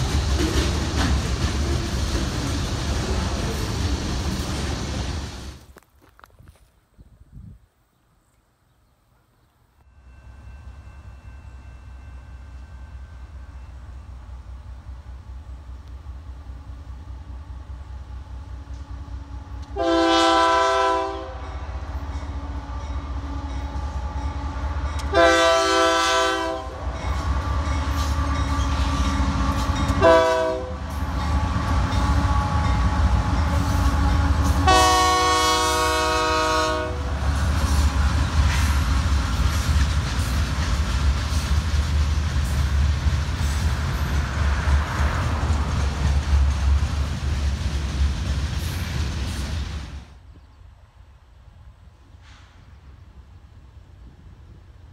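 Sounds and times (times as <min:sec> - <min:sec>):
wheels clicking over rail joints: 0:00.0 - 0:04.8, 0:37.2 - 0:49.8
train rumble: 0:00.0 - 0:07.5, 0:09.8 - 0:54.9
locomotive air horn blasts: 0:19.4 - 0:21.6, 0:22.3 - 0:38.1.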